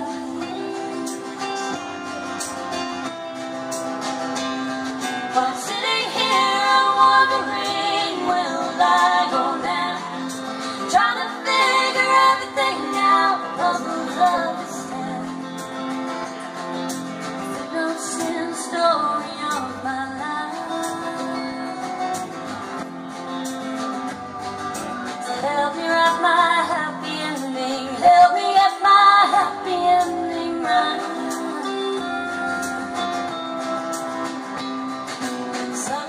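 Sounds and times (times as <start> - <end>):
women singing: 0.0 - 1.8, 5.3 - 15.9, 17.5 - 22.3, 25.2 - 34.1, 35.8 - 36.0
strummed acoustic guitars: 0.0 - 36.0.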